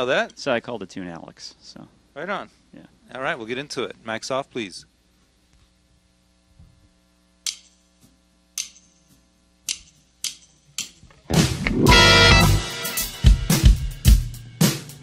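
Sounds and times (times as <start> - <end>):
faint amplifier hum: 0.0 - 12.8
drumsticks clicking: 7.4 - 7.8, 8.6 - 9.0, 9.7 - 11.0
full band playing: 11.3 - 14.9.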